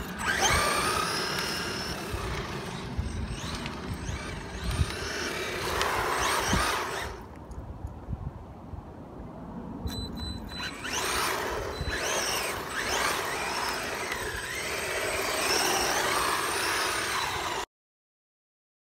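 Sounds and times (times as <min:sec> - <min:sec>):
electric rc car motor whining: 0:00.0 - 0:07.3, 0:10.4 - 0:17.7.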